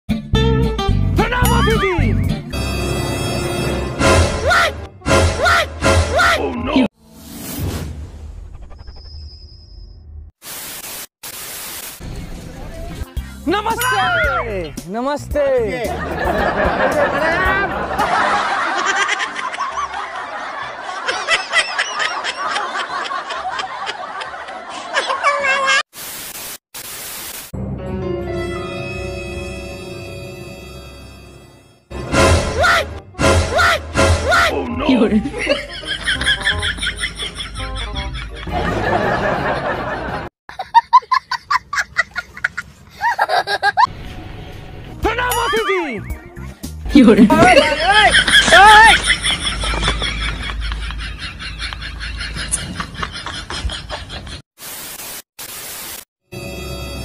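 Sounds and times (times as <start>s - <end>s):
comedy music: 0.1s - 6.9s, 12.9s - 22.7s, 27.9s - 40.2s, 45.0s - 50.3s
loud hiss: 10.4s - 12.1s, 25.9s - 27.5s, 54.6s - 56.1s
giggling laughter: 15.9s - 25.8s, 35.1s - 43.9s, 47.8s - 54.4s
young child laughing: 24.7s - 25.8s, 40.5s - 43.9s.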